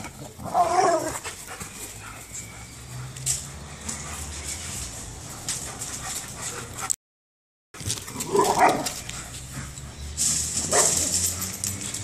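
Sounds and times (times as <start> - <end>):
dogs play-fighting: 0.0 - 7.0.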